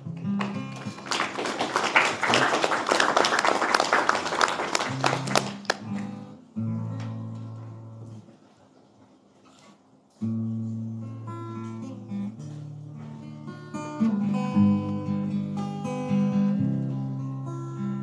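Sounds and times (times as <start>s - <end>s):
acoustic guitar notes: 0.0s - 1.1s, 4.9s - 8.4s, 10.1s - 18.0s
audience applauding: 0.4s - 6.0s.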